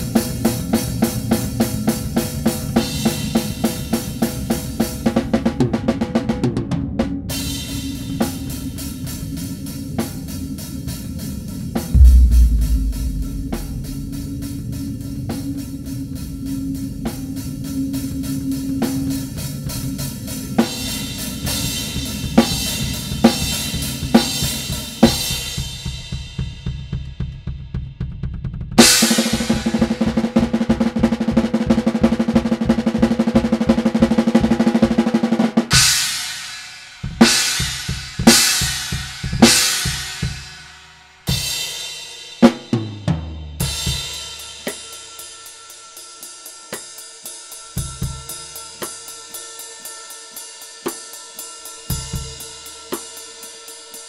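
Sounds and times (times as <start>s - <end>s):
drum beat: 12.0s - 14.7s
cymbal crash: 12.0s - 15.6s
fast drum roll: 12.0s - 15.6s.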